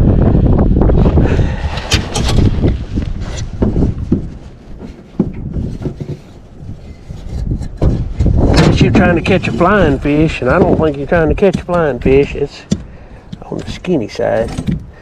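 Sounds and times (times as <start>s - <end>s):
wind rumbling on microphone: 0.0s - 15.0s
sharp knocks and clicks: 3.4s - 6.3s, 10.4s - 14.9s.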